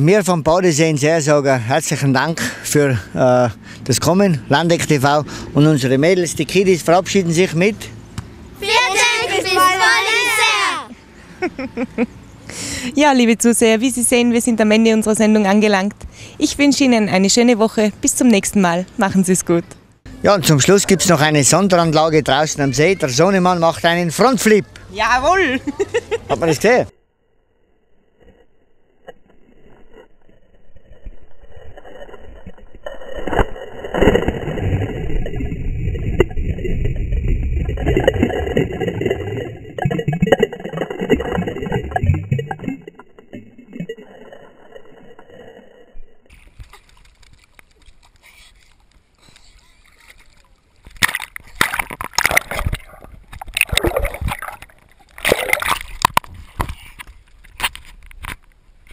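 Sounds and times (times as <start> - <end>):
water splashing and churning: 33.2 - 45.2, 46.3 - 57.0
muffled underwater bubbling: 33.5 - 46.3
muffled rubbing on microphone: 55.6 - 58.0.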